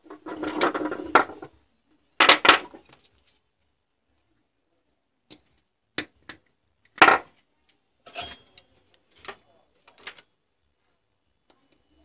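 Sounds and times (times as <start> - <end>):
objects knocking on workbench: 7.0 - 7.3.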